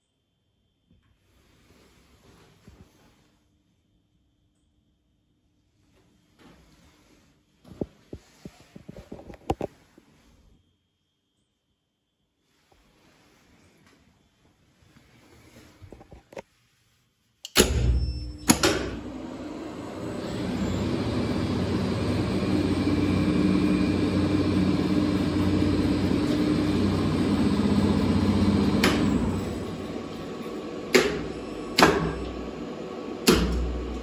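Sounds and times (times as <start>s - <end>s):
lift motor humming and whining: 17.5s - 34.0s
lift machine clunks: 30.9s - 32.4s.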